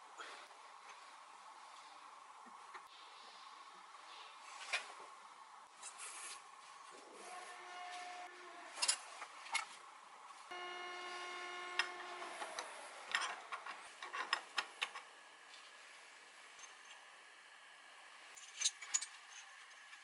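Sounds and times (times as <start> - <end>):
steady pitched hum sliding down: 10.5 - 13.8.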